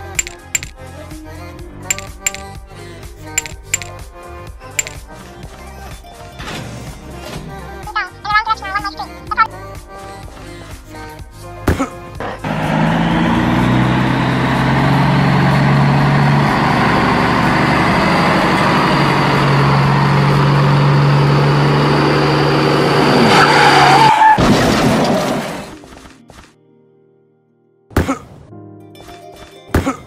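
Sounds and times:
truck engine running: 12.4s - 23.2s.

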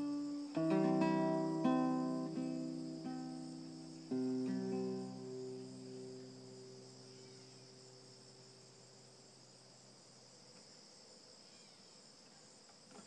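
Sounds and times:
classical guitar notes: 0.0s - 6.9s
crickets chirring: 0.0s - 13.0s.

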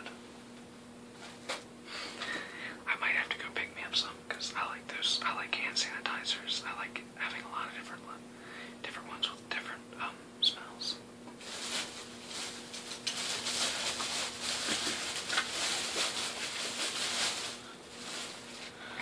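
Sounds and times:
shopping bags rustling: 11.4s - 18.8s.

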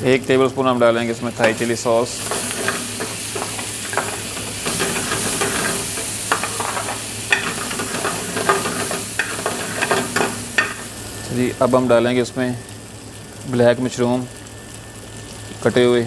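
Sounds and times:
meat sizzling in a frying pan: 0.0s - 16.0s
metal ladle scraping a pan: 1.4s - 10.9s.

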